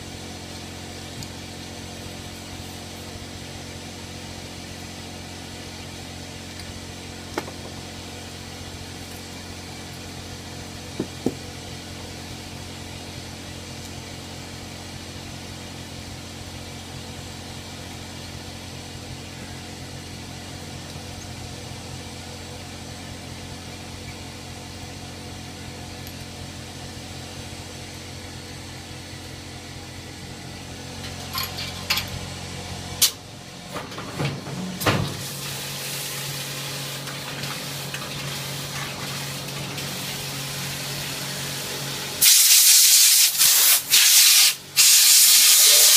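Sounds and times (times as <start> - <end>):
faucet water spraying: 35.2 - 41.1, 42.2 - 45.9.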